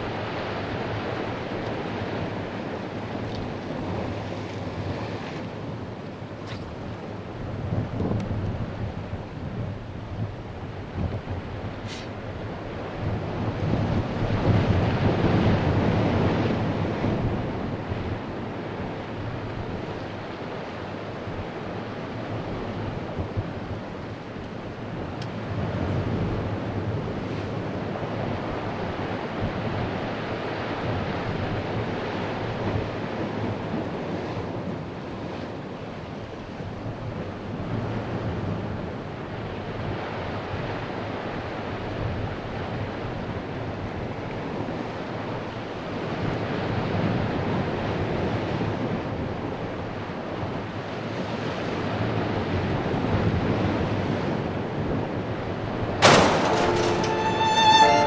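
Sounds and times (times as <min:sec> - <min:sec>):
wind buffeting microphone: 0:00.0 - 0:35.3
ocean surf on rocky shore: 0:00.0 - 0:58.0.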